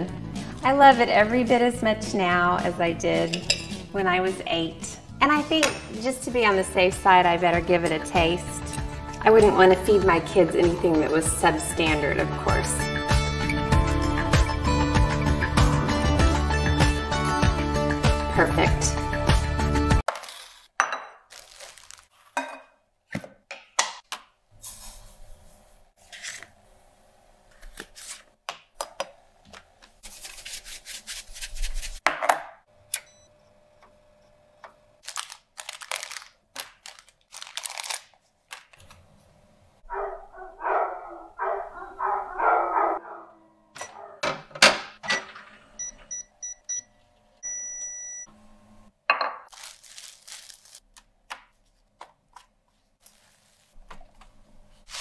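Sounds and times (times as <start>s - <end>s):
plastic packaging crinkling: 21.3s - 22.4s, 35.0s - 39.0s, 49.5s - 51.1s.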